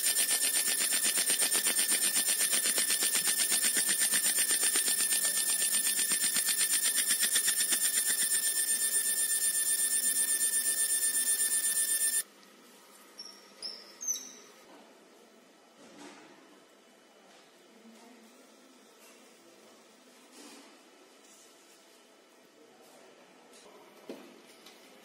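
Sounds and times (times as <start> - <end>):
laser machine high-pitched buzz: 0.0 - 12.2.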